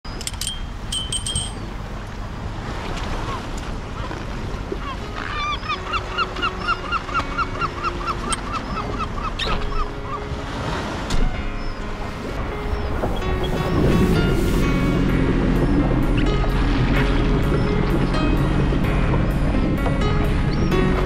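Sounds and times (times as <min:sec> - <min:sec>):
bird honking: 0:04.8 - 0:10.3.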